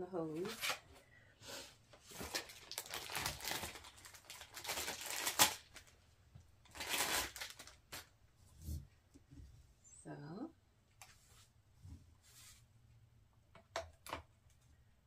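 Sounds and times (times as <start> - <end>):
plastic wrapping crinkling: 2.0 - 6.0, 6.6 - 8.1.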